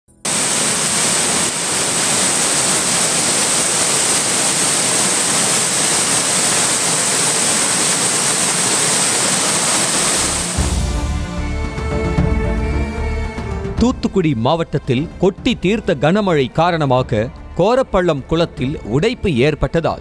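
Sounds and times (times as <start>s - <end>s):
turbulent water rushing: 0.2s - 11.0s.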